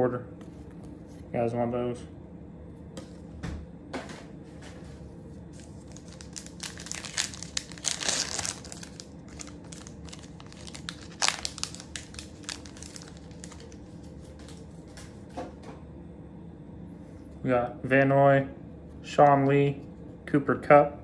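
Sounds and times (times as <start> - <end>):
foil wrapper crinkling and tearing: 5.6 - 14.6.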